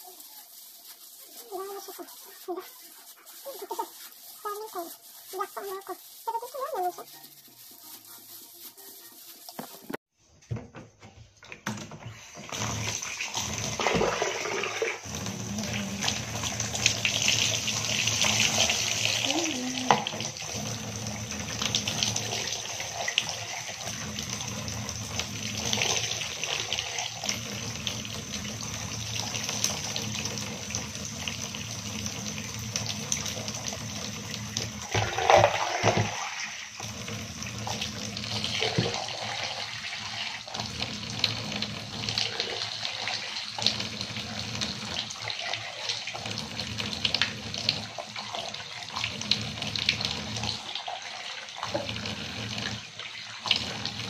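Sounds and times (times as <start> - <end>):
tap running into bathtub: 9.5 - 19.2, 19.8 - 50.7
water poured splashing into tub: 12.1 - 54.0.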